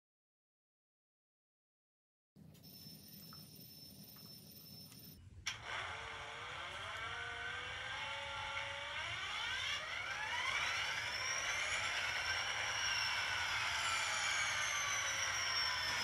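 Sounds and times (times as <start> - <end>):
model locomotive motor whining: 5.5 - 16.0
motor starting click: 5.5 - 16.0.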